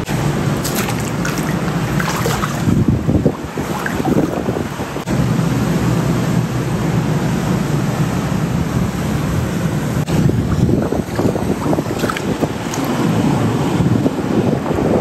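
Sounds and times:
water rushing: 0:00.0 - 0:05.1, 0:10.0 - 0:13.8
wind buffeting microphone: 0:00.0 - 0:05.3, 0:08.6 - 0:15.0.

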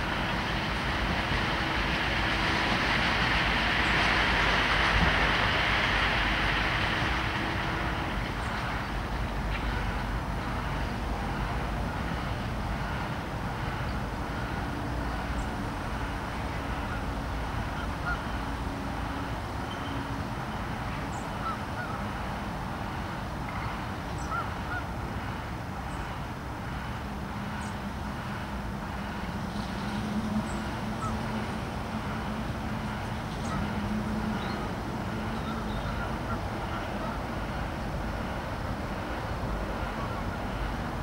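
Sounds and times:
distant machinery engine drone: 0:00.0 - 0:41.0
geese honking: 0:17.8 - 0:18.3, 0:23.5 - 0:24.9, 0:29.5 - 0:32.4, 0:33.0 - 0:37.4.

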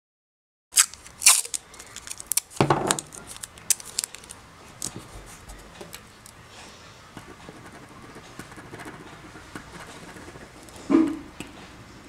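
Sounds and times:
tape pulled and torn: 0:00.8 - 0:05.0
paper handling noises: 0:00.8 - 0:06.4.

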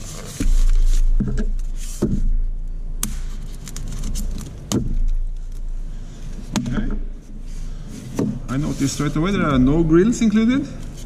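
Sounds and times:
styrofoam rubbing on table: 0:00.0 - 0:02.0, 0:08.5 - 0:09.4.

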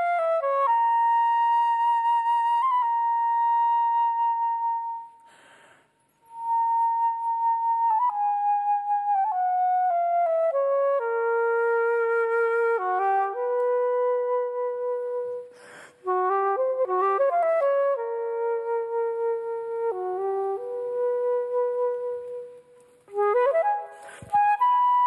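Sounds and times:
flute melody: 0:00.0 - 0:05.4, 0:06.2 - 0:25.0
flutist breathing: 0:05.2 - 0:06.2, 0:15.4 - 0:16.1, 0:23.8 - 0:24.5.

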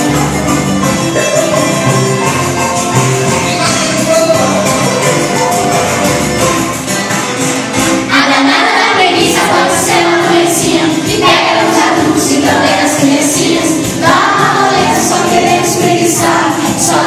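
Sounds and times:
upbeat children's song: 0:00.0 - 0:17.0
children singing along: 0:08.0 - 0:17.0.

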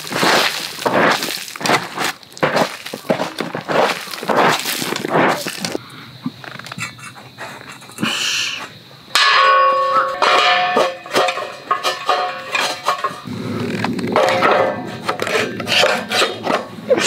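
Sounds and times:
ringing metal clang: 0:09.1 - 0:13.2
metal plates clanking: 0:09.1 - 0:13.3, 0:14.0 - 0:17.0
metal scraping on metal: 0:09.8 - 0:17.0.

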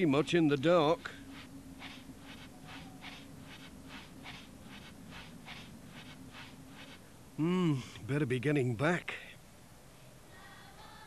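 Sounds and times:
faint steady hum: 0:00.0 - 0:11.0
footsteps crunching through snow: 0:01.2 - 0:07.1.

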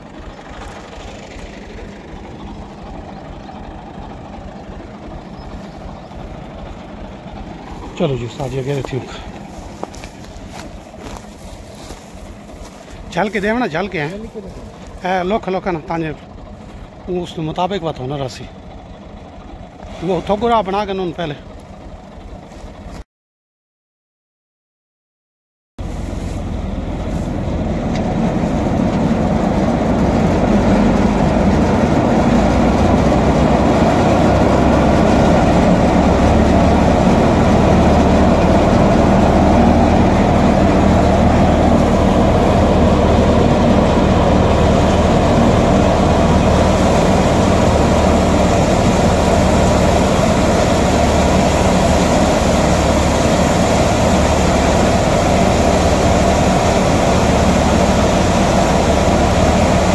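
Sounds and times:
thresher mechanical drone: 0:26.0 - 0:59.9.

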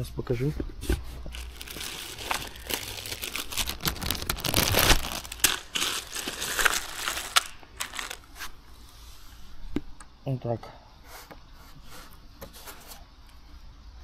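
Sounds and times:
plastic bag crinkling: 0:01.3 - 0:08.5.

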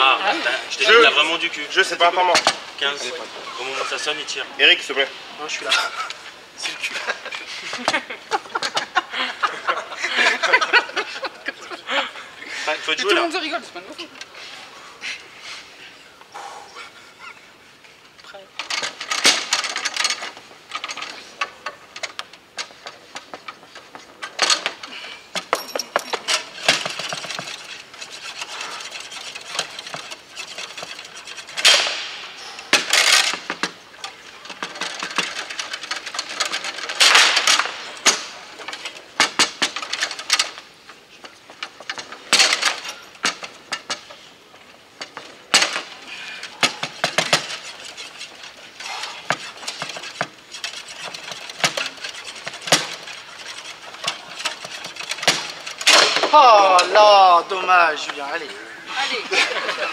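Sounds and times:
foosball rods clattering: 0:07.0 - 0:11.5, 0:18.6 - 0:58.2.

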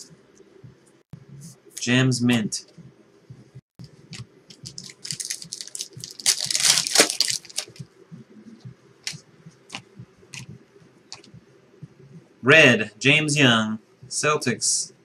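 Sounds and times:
foil wrapper tearing and crinkling: 0:04.6 - 0:07.8.

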